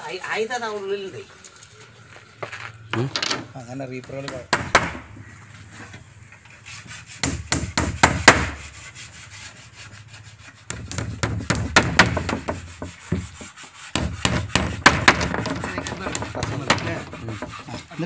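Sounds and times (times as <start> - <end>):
hammer tapping nails into wood: 10.7 - 13.4, 14.0 - 17.6.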